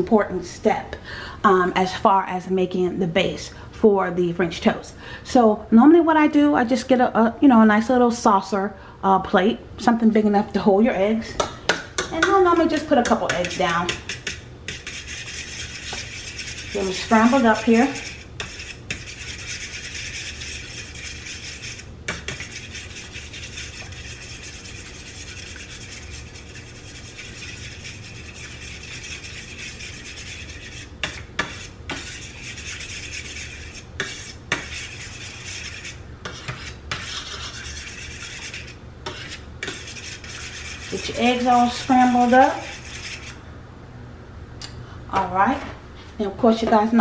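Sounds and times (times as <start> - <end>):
fork scraping across plate: 12.5 - 43.4.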